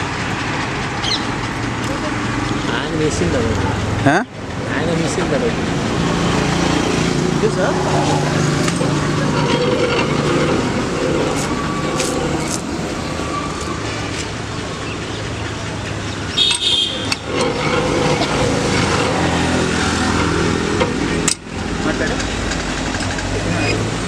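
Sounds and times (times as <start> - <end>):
cane crusher rollers humming: 0.0 - 24.0
high squeal or scrape: 7.6 - 14.8.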